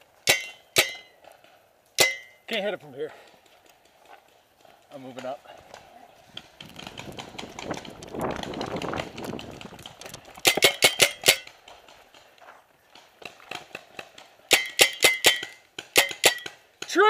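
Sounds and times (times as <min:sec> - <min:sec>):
paintball marker shots: 0:13.2 - 0:17.0.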